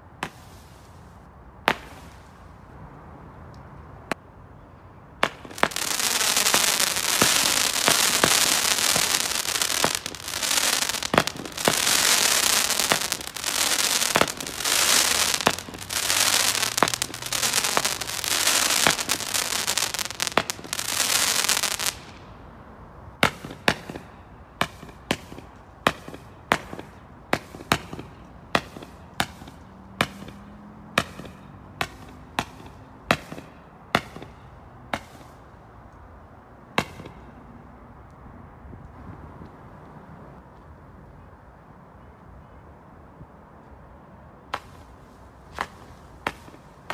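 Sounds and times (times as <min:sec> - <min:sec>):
firework sharp cracks: 0:01.7 - 0:02.2, 0:05.2 - 0:22.2
firework sparks hissing and crackling: 0:05.2 - 0:22.2.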